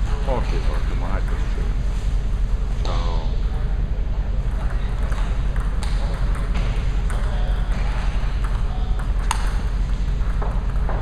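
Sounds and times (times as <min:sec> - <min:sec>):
table tennis ball clicking: 0:08.3 - 0:11.0.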